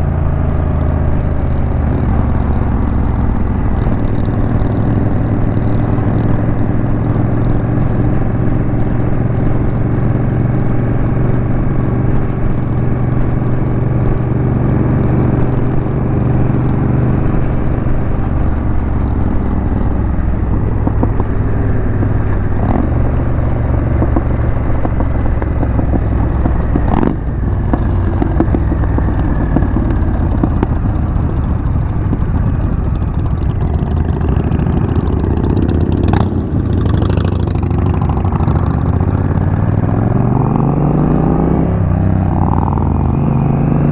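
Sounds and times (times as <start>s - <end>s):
motorcycle engine running: 0.0s - 43.9s.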